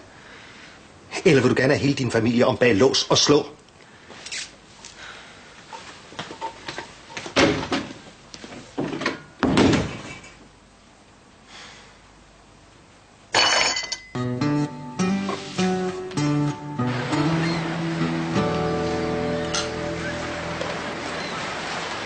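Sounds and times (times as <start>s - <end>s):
door knocks and thuds: 7.4s - 7.9s, 8.9s - 10.0s
door being shut: 9.4s - 10.1s
music: 14.1s - 21.2s.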